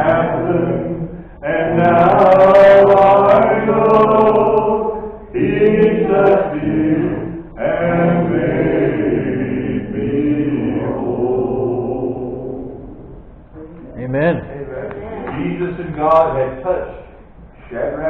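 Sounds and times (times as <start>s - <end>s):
congregation singing a hymn: 0.0s - 13.1s.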